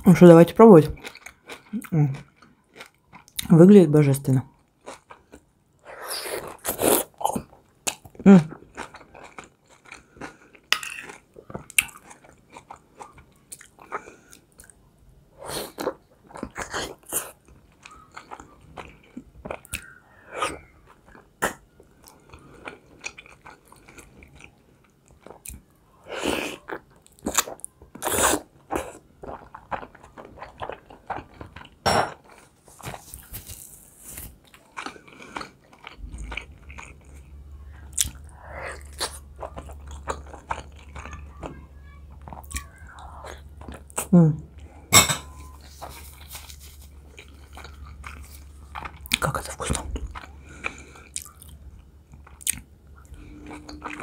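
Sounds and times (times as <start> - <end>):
chewing with wet mouth smacks: 6.4 - 14.8, 15.7 - 25.7, 26.6 - 33.6, 34.4 - 41.5, 45.9 - 54.0.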